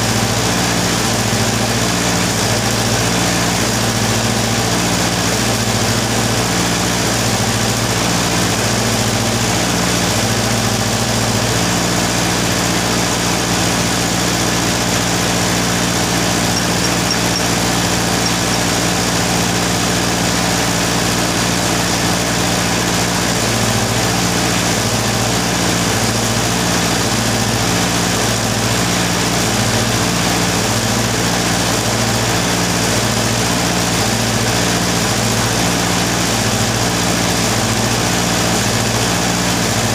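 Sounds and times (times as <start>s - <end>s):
engine humming: 13.7s - 24.1s.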